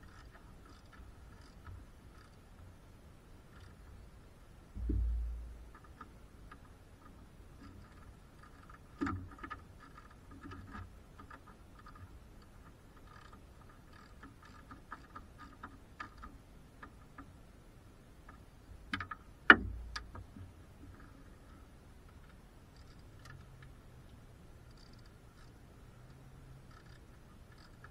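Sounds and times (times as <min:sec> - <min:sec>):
dull thump: 0:04.8 - 0:05.6.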